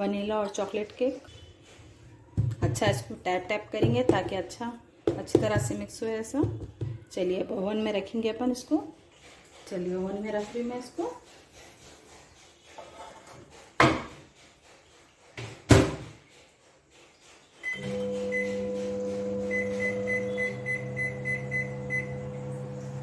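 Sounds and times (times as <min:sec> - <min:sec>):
microwave oven humming: 0:17.8 - 0:23.0
keypad beeps: 0:19.5 - 0:22.1.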